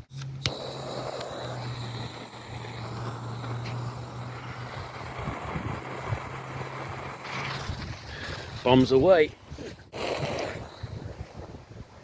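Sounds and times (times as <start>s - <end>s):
lighter clicking: 0.4s - 4.2s
flame hissing: 0.4s - 12.0s.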